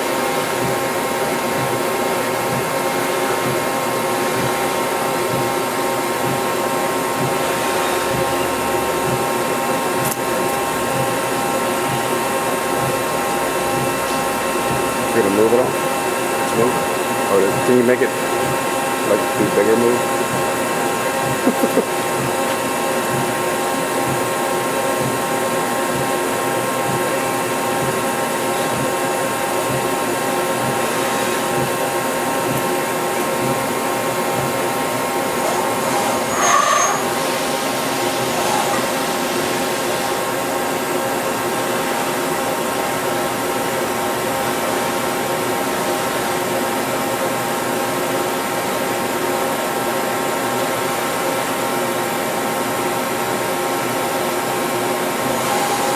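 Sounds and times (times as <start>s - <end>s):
mill machine whirring: 0.0s - 55.9s
machine squeal: 35.9s - 37.2s.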